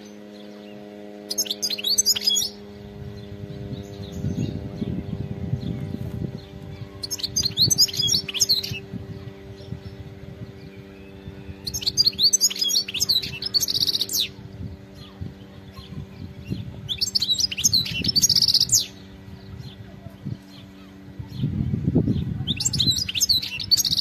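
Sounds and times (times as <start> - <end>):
bird twittering: 0.0 - 24.0
buzzy bird trill: 0.0 - 24.0.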